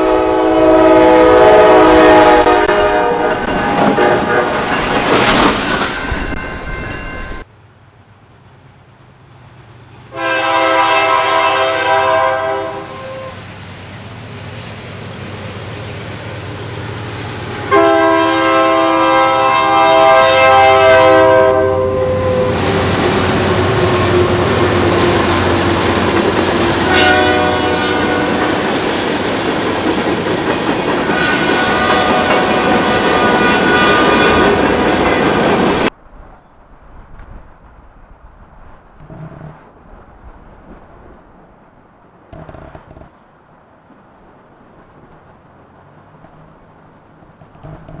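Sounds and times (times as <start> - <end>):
locomotive horn blasts: 0.0 - 4.7, 10.1 - 13.4, 17.6 - 22.9, 26.7 - 28.6, 31.1 - 35.3
train rumbling past: 0.0 - 48.0
wheels clacking over rail joints: 2.5 - 7.5, 22.2 - 39.8, 44.8 - 48.0.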